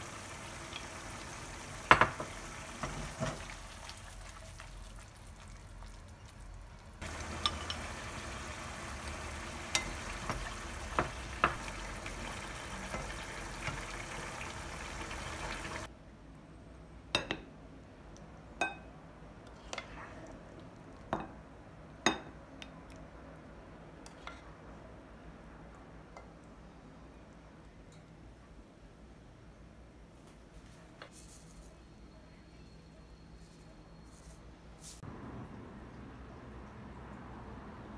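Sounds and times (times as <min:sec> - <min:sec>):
sauce simmering in a frying pan: 0:00.0 - 0:15.9
wooden spoon knocking a pan: 0:01.8 - 0:03.5, 0:07.0 - 0:14.1
wooden spoon knocking a plate: 0:01.9 - 0:03.4.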